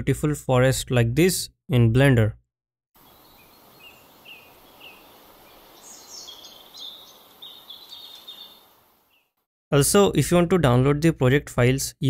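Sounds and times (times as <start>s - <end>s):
soft steady hiss: 3.0s - 9.2s
small birds chirping: 3.0s - 9.4s.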